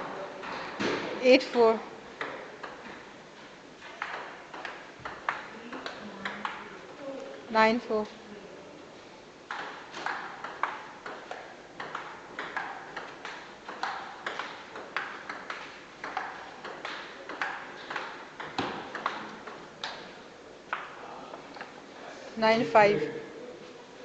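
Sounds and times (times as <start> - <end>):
table tennis ball clicking: 9.5 - 20.0.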